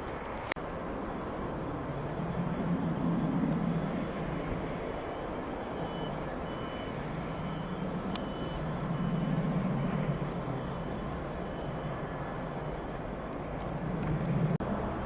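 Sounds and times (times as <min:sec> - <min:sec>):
low engine rumble: 0:00.0 - 0:15.0
reversing alarm beeping: 0:01.8 - 0:13.0.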